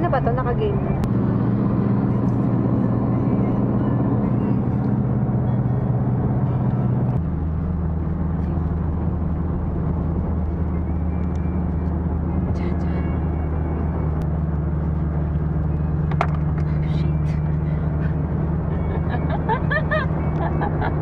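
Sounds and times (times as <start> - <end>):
car engine and road drone: 0.0 - 21.0.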